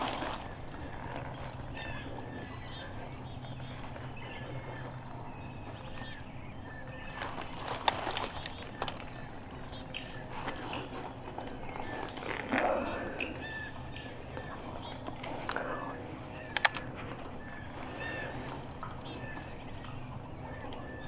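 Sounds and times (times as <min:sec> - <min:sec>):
songbirds chirping: 0:00.0 - 0:21.0
crunching in dry leaves: 0:07.0 - 0:09.3.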